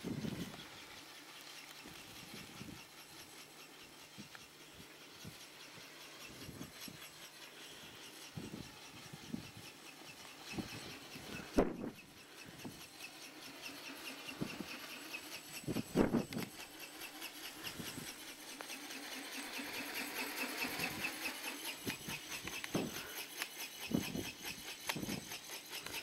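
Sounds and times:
wind buffeting microphone: 0.0s - 0.7s, 15.6s - 16.6s
flapping wings and motor pulsing: 0.0s - 26.0s.

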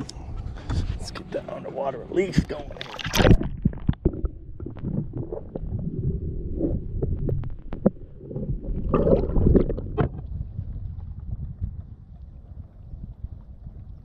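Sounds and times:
muffled underwater rumble: 0.0s - 14.0s
underwater clicks and knocks: 2.4s - 12.0s.

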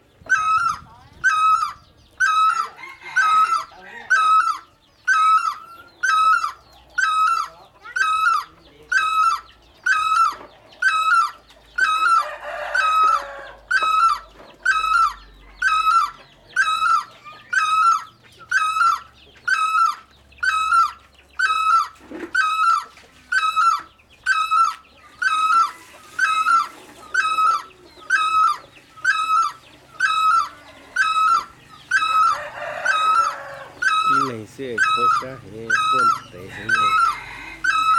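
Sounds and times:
bird calling repeated note: 13.0s - 37.9s.

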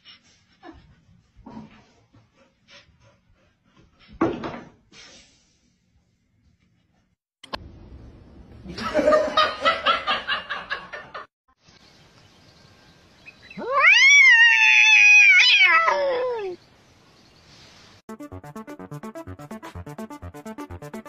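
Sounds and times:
cat yowling: 13.6s - 16.6s.

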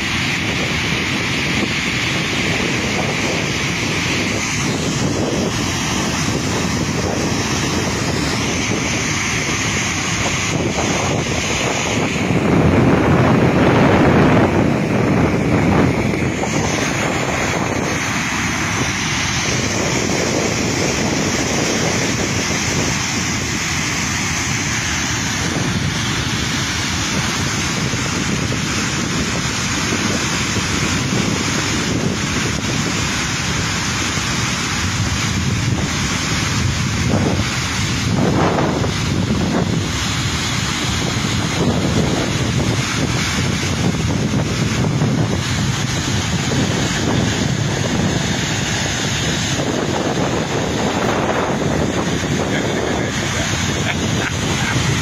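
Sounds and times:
water rushing over spillway: 0.0s - 55.0s.

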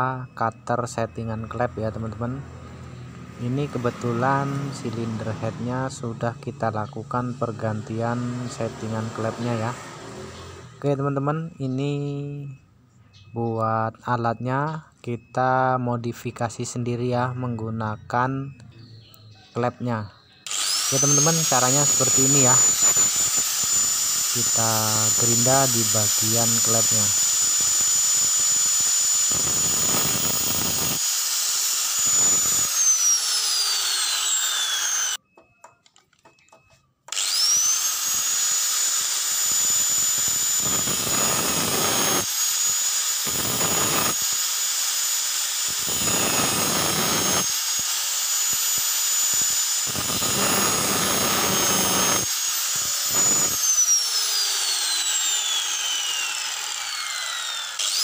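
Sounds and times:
angle grinder whining: 0.0s - 12.6s, 16.6s - 58.0s.

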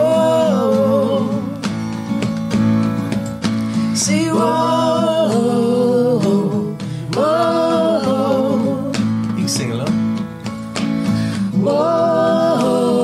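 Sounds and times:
acoustic guitar strumming: 0.0s - 13.0s
people singing held notes: 11.5s - 13.0s.

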